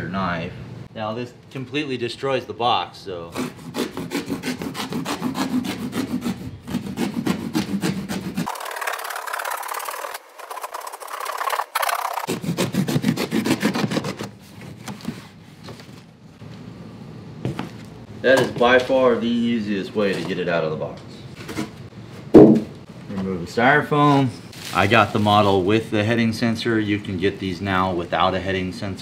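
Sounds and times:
knife cutting cardboard: 3.4 - 15.4.

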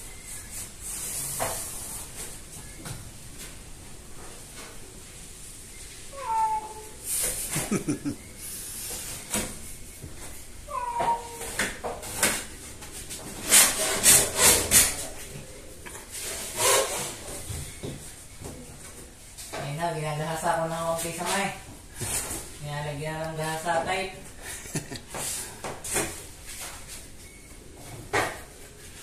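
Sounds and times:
cat meowing: 6.1 - 7.0, 10.7 - 11.5.

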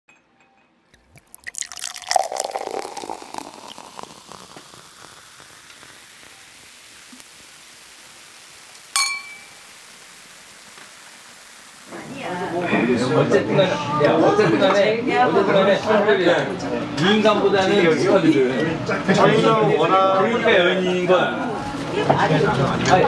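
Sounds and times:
beer fizzing: 0.9 - 23.0
spoon clinking glass: 1.0 - 5.2, 8.9 - 9.7
beer pouring into glass: 1.0 - 15.2.

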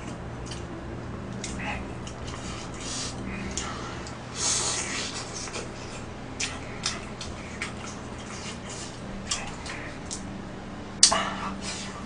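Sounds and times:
hissing slurp: 1.5 - 10.1.

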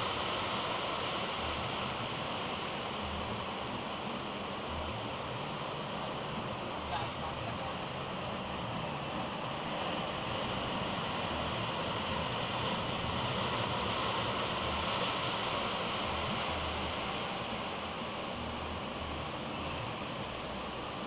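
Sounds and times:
waves breaking: 0.0 - 21.0.

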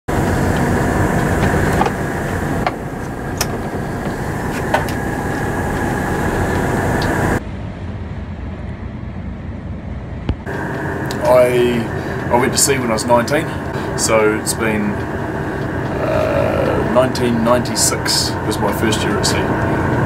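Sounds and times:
engine drone: 0.0 - 20.0
boat hull noise: 0.1 - 7.4, 10.4 - 20.0
sharp clicks and knocks: 0.2 - 7.2.

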